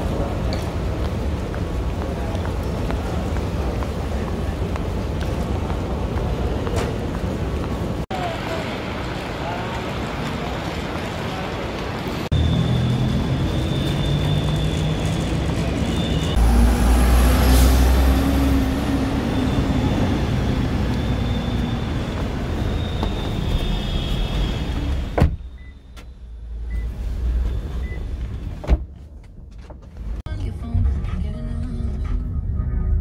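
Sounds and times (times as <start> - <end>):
vehicle engine rumble: 0.0 - 33.0.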